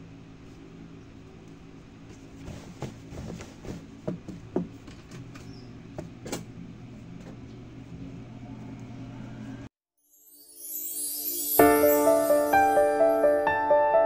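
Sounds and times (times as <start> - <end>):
low electric hum: 0.0 - 9.7.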